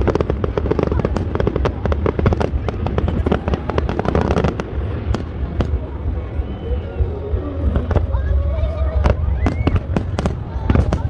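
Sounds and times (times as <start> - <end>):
fireworks bangs and pops: 0.0 - 6.2, 9.0 - 11.0
steady low rumble: 0.0 - 11.0.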